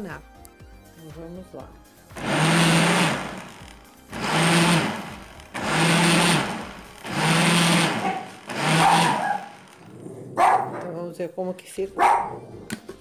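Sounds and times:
blender motor churning: 2.1s - 10.0s.

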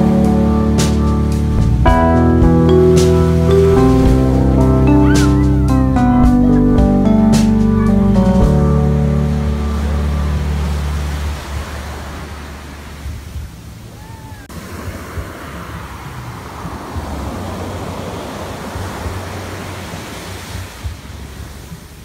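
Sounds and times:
wind rumbling on microphone: 0.0s - 7.4s, 8.2s - 22.0s
small waves washing over sand: 8.8s - 22.0s.

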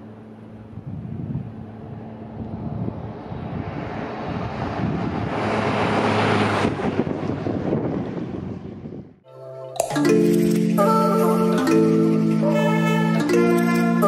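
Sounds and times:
heavy truck passing: 0.0s - 9.0s.

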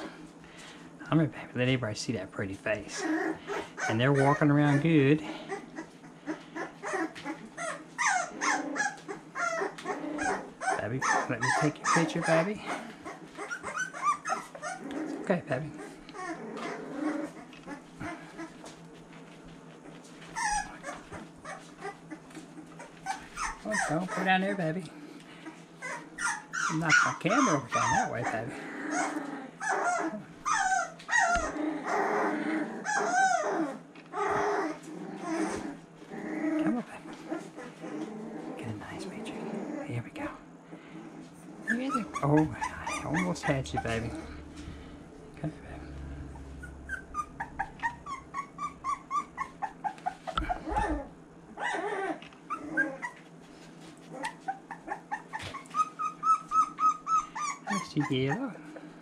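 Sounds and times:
puppy whining and whimpering: 2.8s - 18.9s, 19.8s - 24.8s, 25.4s - 40.1s, 40.7s - 58.9s.

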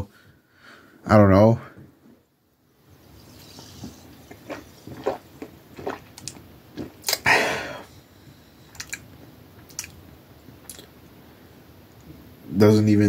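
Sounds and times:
lip and tongue clicks: 3.3s - 7.2s, 8.7s - 10.0s, 10.6s - 10.9s.

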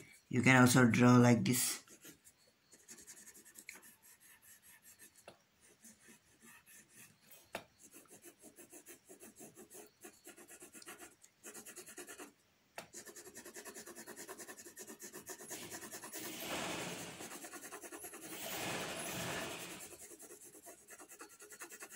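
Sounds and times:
pencil shading on paper: 1.0s - 21.9s.

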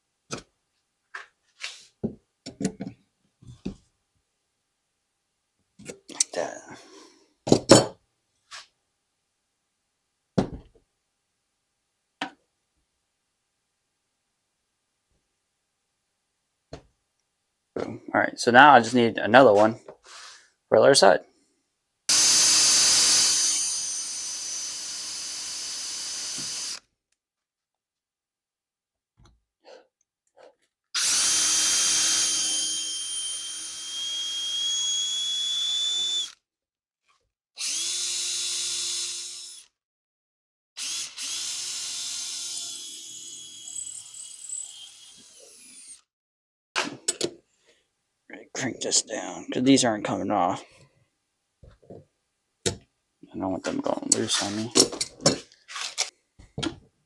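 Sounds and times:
cordless drill motor whine: 22.1s - 26.8s, 31.0s - 36.4s, 37.6s - 39.7s, 40.8s - 46.0s.

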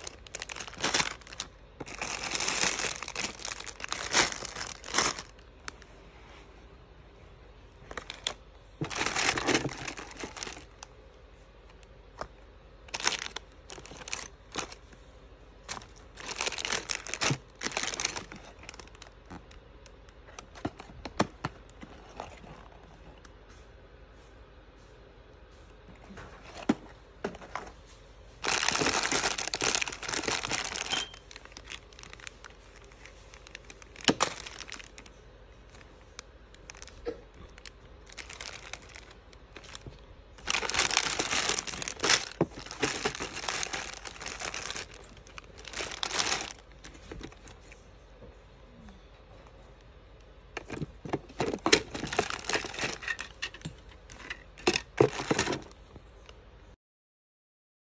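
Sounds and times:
plastic bags crinkling: 0.0s - 5.8s, 7.8s - 11.0s, 11.7s - 15.0s, 15.6s - 23.2s, 28.4s - 47.8s, 50.5s - 56.0s
plastic parts clicking and knocking: 7.9s - 10.8s, 36.6s - 47.6s, 50.5s - 55.8s.

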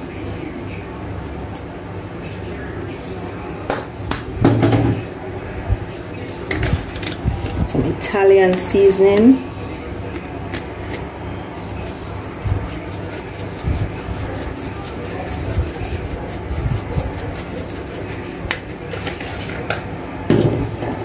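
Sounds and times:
spice shaker shaking: 11.6s - 18.4s.

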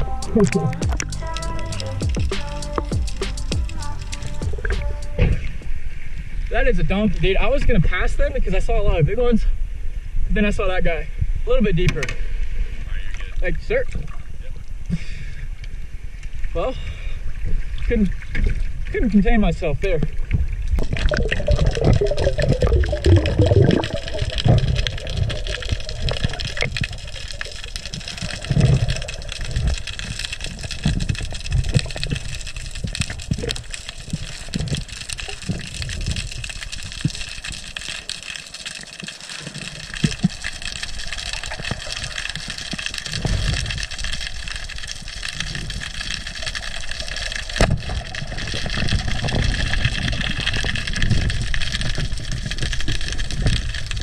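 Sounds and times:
low underwater thumps: 0.0s - 5.8s, 20.1s - 37.2s
splashing water: 0.0s - 5.9s, 19.8s - 54.0s
muffled underwater movement: 0.0s - 8.2s, 11.1s - 54.0s.

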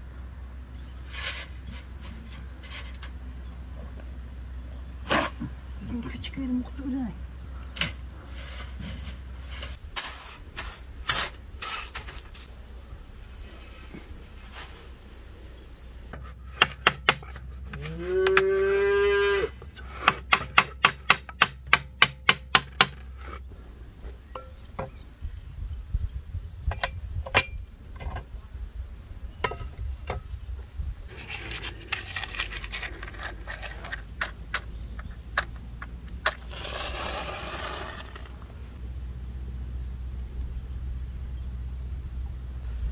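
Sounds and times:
crickets chirring: 0.0s - 42.9s
trowel tapping bricks: 16.1s - 18.5s, 19.9s - 23.4s
cow mooing: 17.8s - 19.6s.

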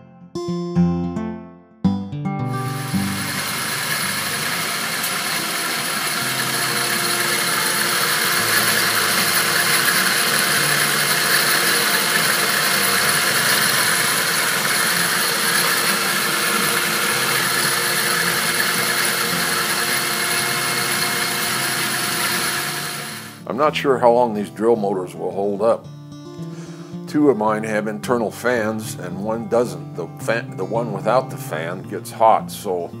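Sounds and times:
motors whirring and whining: 2.7s - 23.4s.

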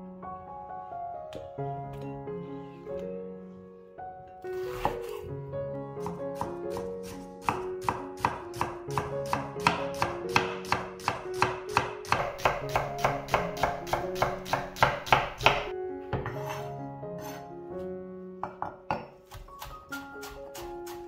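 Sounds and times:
background music: 0.0s - 21.0s
knife chopping on cutting board: 6.4s - 15.7s, 18.5s - 21.0s.

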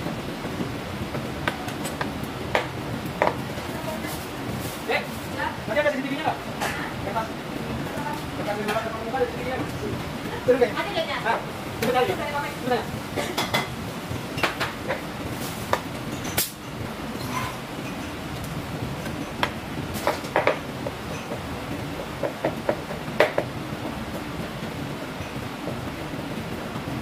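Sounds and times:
background kitchen noise: 0.0s - 27.0s
utensils and dishes clinking: 13.1s - 18.2s, 19.0s - 21.4s.

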